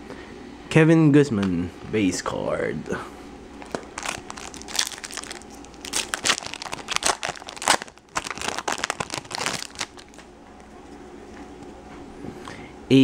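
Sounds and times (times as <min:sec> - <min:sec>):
foil wrapper crinkling and tearing: 0:03.6 - 0:10.2.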